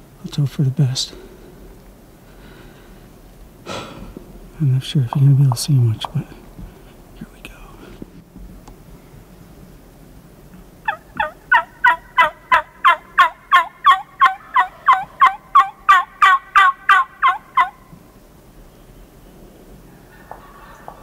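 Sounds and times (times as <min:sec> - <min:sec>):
turkey yelping: 0:10.8 - 0:17.9, 0:19.9 - 0:21.0.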